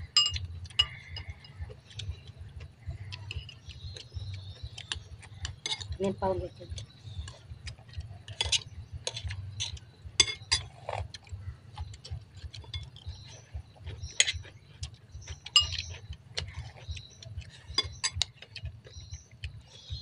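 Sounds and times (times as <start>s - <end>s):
spoons clinking against bowls: 0.0s - 3.9s, 4.8s - 11.0s, 15.2s - 17.0s, 17.7s - 18.6s.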